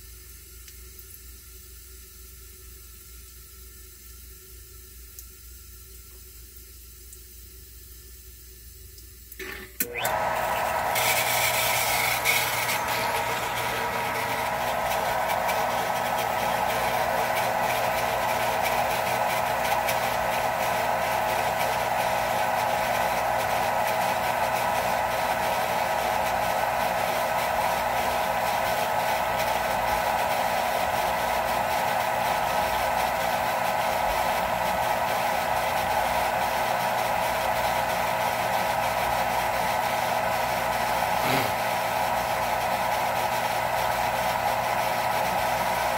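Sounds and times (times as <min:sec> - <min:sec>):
pump motor humming: 0:09.4 - 0:45.9.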